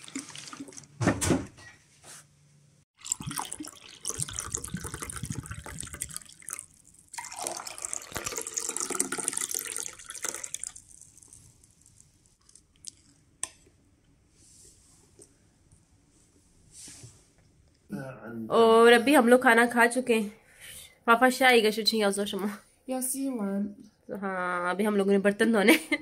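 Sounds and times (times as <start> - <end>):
water running and splashing: 0.0 - 1.0, 3.0 - 11.6.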